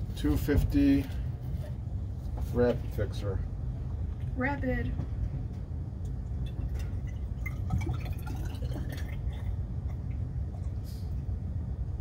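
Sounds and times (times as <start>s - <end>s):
low background rumble: 0.0s - 12.0s
small dripping: 6.0s - 10.8s
liquid trickling into funnel: 6.3s - 10.8s.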